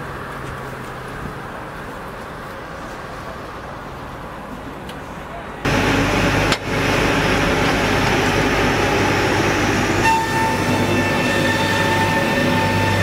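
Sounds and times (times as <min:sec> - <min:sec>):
high multi-tone whine: 0:05.7 - 0:13.0
sawmill machinery running: 0:05.7 - 0:13.0.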